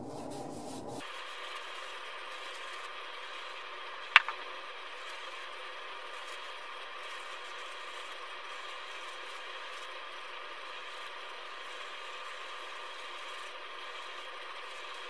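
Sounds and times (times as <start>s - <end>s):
steady hiss: 0.0s - 15.0s
sharp click: 4.2s - 4.4s.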